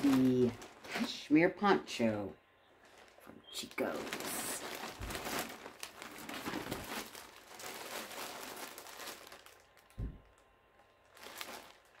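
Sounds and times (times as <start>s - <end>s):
plastic packaging crinkling: 0.0s - 1.6s, 2.8s - 12.0s
soft low thump: 9.9s - 10.3s.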